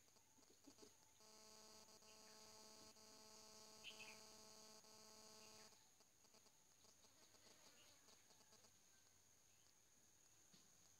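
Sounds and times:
faint pitched hum: 0.0s - 10.9s
faint chirp: 0.3s - 10.9s.

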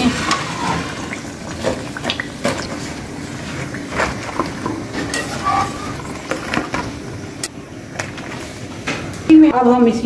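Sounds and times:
hot oil sizzling: 0.0s - 9.3s
wire skimmer clinking on pan: 4.9s - 6.4s.

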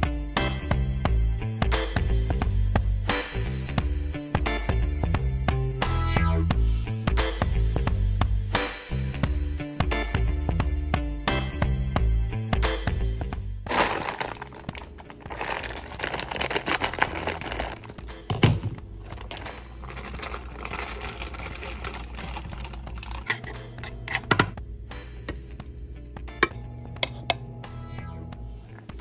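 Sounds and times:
background music: 0.0s - 29.0s
plastic bag crinkling: 13.7s - 23.6s.

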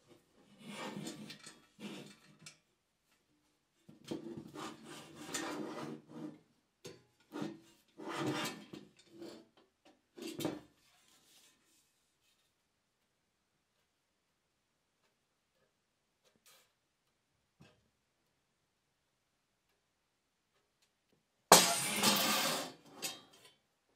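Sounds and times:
metal helmet scraping on wood: 4.1s - 6.5s, 7.3s - 9.6s, 21.5s - 23.4s.

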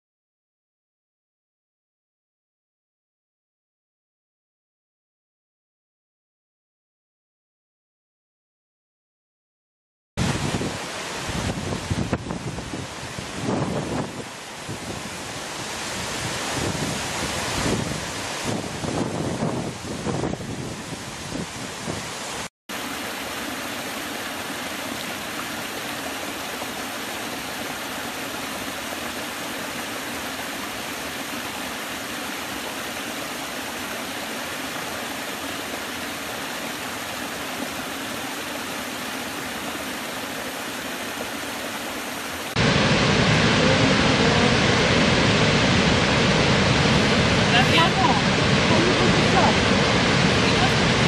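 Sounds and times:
waterfall rushing: 10.2s - 51.0s.

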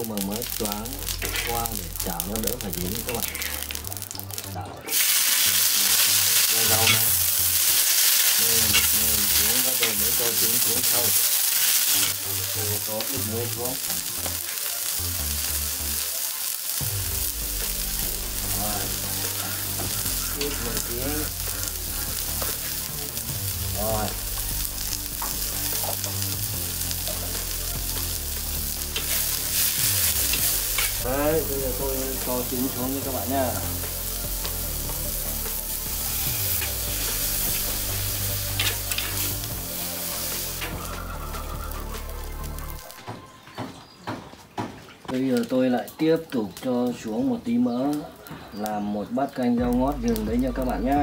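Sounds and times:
greens sizzling in a wok: 0.0s - 43.1s, 45.3s - 51.0s.

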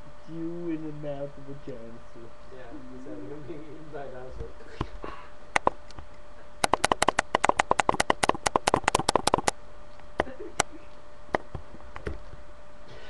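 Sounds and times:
computer mouse clicking: 5.6s - 6.0s, 6.6s - 9.6s.

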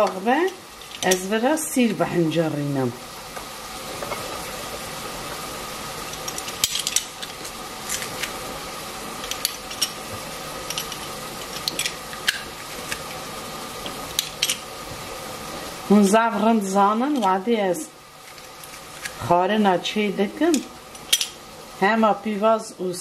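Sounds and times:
steady background hiss: 0.0s - 23.0s.

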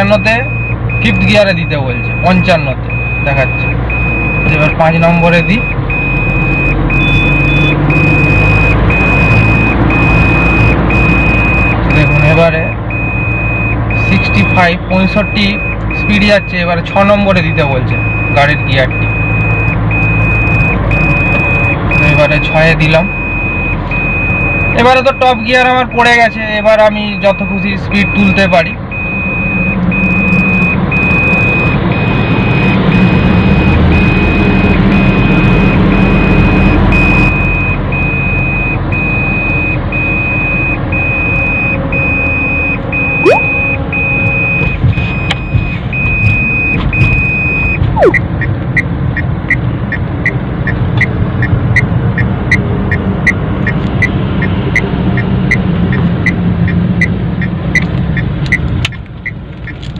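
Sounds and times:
engine and road hum: 0.0s - 59.9s
turn-signal indicator ticking: 44.8s - 59.9s.

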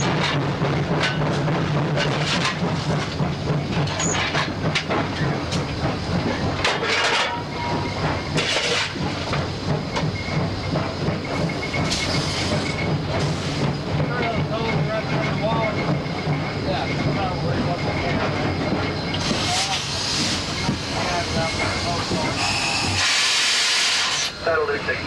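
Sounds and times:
steam locomotive rumble: 0.0s - 25.0s
steam hissing: 7.4s - 25.0s.

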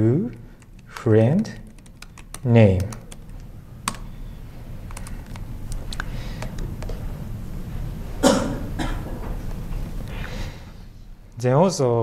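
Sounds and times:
low room hum: 0.0s - 12.0s
laptop keyboard clicks: 0.6s - 4.2s, 4.8s - 7.0s.

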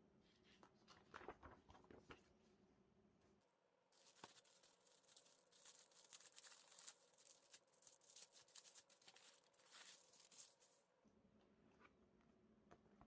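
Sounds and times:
plastic sleeve crinkling: 4.0s - 10.8s.

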